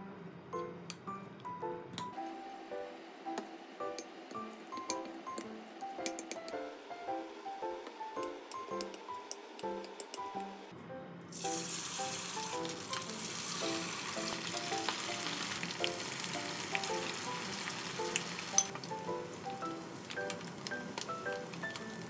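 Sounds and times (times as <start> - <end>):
batter sizzling in hot oil: 11.3 - 22.0.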